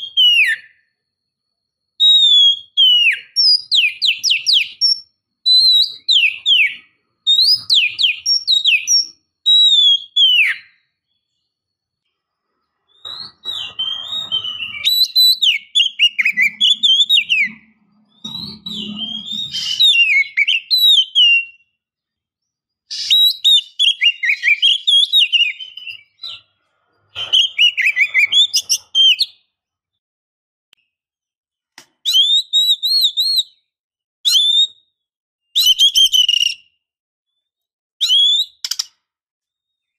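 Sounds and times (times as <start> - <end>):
bird singing whistled phrases: 0.0 - 0.9, 2.0 - 10.8, 12.9 - 21.8, 22.9 - 26.5, 27.1 - 29.5, 32.0 - 34.9, 35.5 - 36.8, 38.0 - 38.9.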